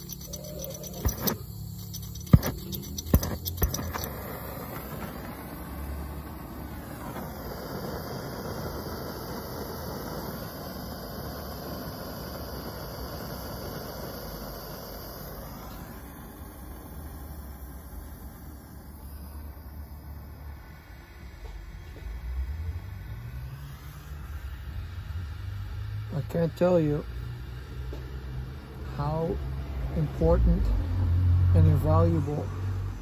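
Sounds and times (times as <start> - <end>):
flint striker clicking: 0.0 - 4.1
gas torch flame hissing: 0.0 - 33.0.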